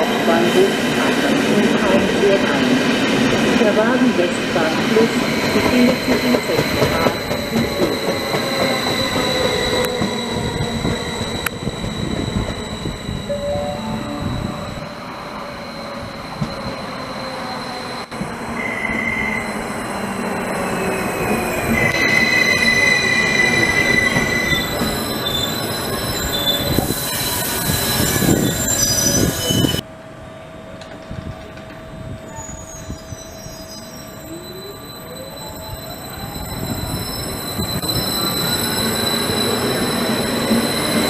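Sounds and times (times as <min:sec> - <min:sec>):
train rumble: 0:00.0 - 0:15.7
train wheels and brakes squealing: 0:00.0 - 0:29.8, 0:30.5 - 0:41.0.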